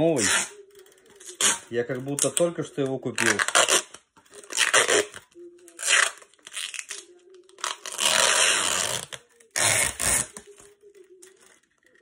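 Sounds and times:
plastic film crinkling as peeled: 0:00.0 - 0:12.0.

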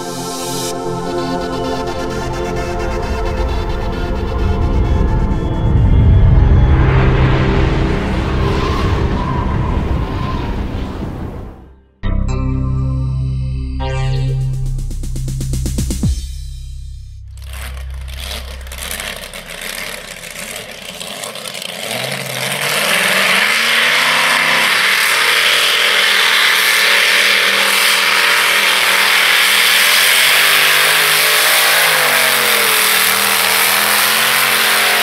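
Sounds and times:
tractor engine revving: 0:17.2 - 0:35.0.

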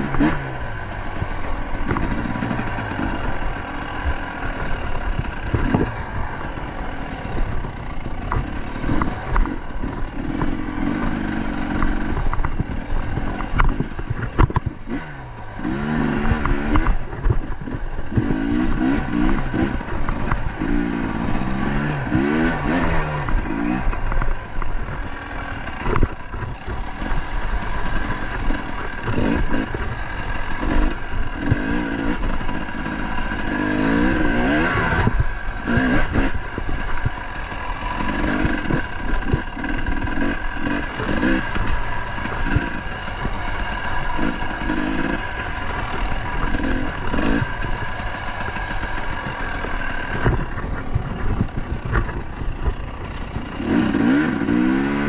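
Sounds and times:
dirt bike engine revving: 0:00.0 - 0:55.0
bike knocks and clatter: 0:11.8 - 0:15.0.

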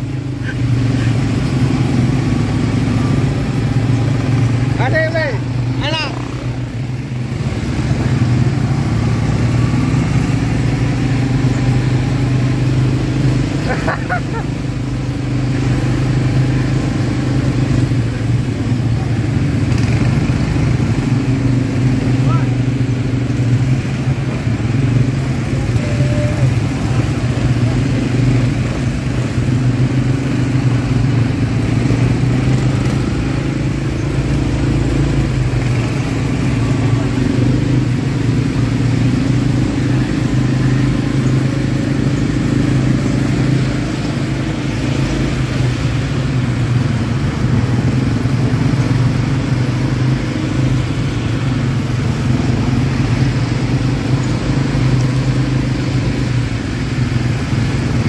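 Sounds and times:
atv engine droning: 0:00.0 - 0:58.0.

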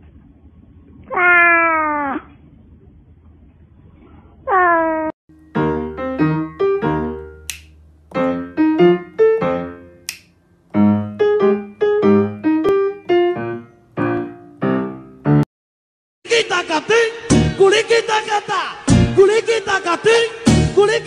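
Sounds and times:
bouncy keyboard melody: 0:05.3 - 0:15.5.

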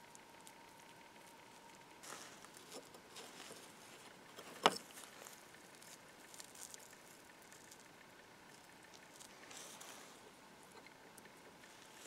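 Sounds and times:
rustling: 0:00.0 - 0:12.0.

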